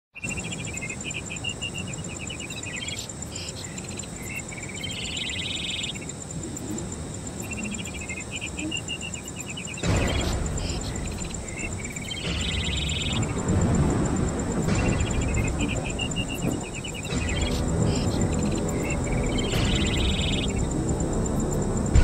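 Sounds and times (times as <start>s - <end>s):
insect chirping trills: 0.2s - 22.0s
low rushing rumble: 9.8s - 22.0s.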